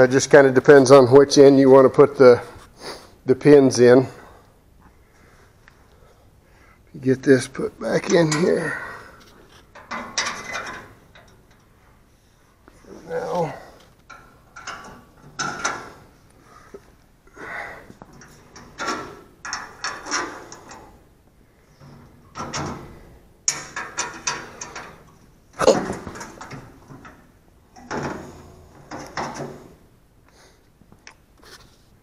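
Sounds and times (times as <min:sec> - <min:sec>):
metal pins clinking and rattling: 0:08.1 - 0:11.7, 0:14.1 - 0:16.1, 0:18.1 - 0:21.0, 0:21.8 - 0:29.8.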